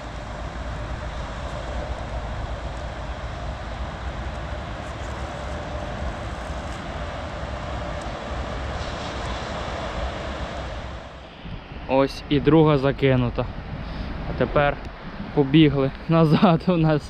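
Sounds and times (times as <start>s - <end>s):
rain falling: 0.0s - 11.2s
wind rumble on microphone: 0.0s - 17.0s.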